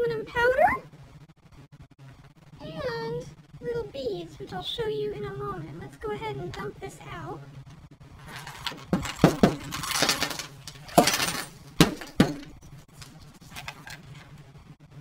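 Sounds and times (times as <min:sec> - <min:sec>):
glass shards clinking: 0:08.3 - 0:12.6.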